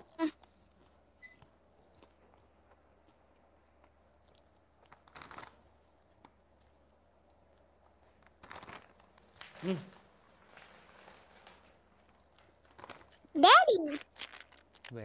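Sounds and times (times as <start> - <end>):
plastic snack packet crinkling: 4.8 - 5.7, 8.0 - 15.0.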